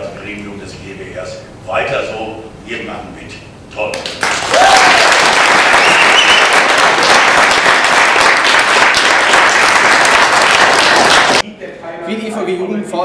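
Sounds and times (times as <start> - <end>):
audience clapping: 3.9 - 11.4
person whooping: 4.5 - 5.2.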